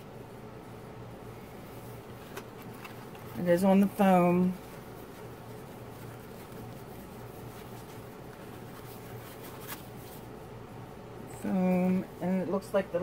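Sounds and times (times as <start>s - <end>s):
plastic wrap rustling: 1.8s - 10.4s.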